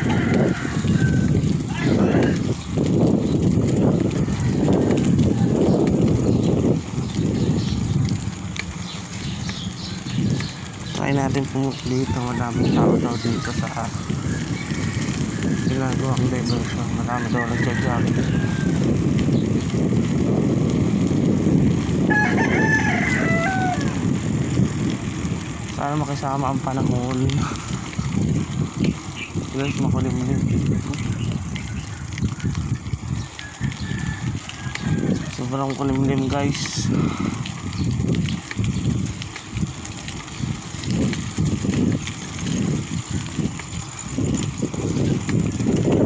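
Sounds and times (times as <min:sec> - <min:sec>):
rooster crowing: 0:00.0 - 0:02.4, 0:11.9 - 0:15.8, 0:17.1 - 0:19.0, 0:22.0 - 0:24.1, 0:33.3 - 0:35.4
bicycle rolling noise: 0:00.0 - 0:46.0
wind rushing over microphone: 0:00.0 - 0:46.0.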